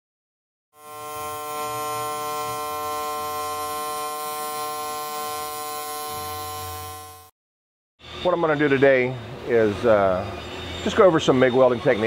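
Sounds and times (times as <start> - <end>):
electrical hum: 0.8 - 7.3
welding arc buzzing hiss: 0.8 - 7.3.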